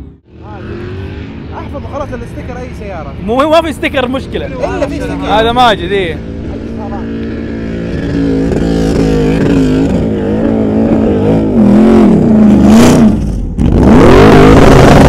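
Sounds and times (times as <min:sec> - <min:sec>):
engine revving hard: 0:06.2 - 0:15.0.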